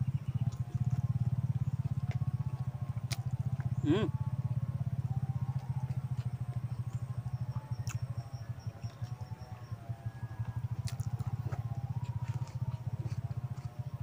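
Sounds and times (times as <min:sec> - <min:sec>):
motorcycle engine idling: 0:00.0 - 0:14.0.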